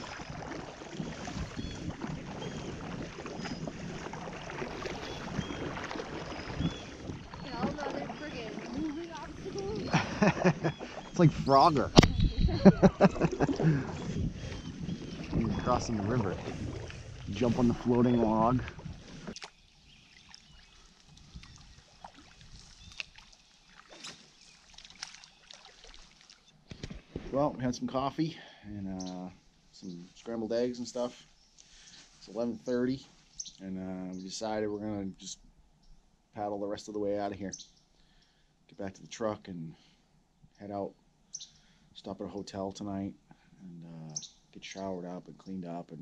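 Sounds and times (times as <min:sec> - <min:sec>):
canoe paddles splashing: 0:00.0 - 0:27.4
water running along hull: 0:00.0 - 0:28.2.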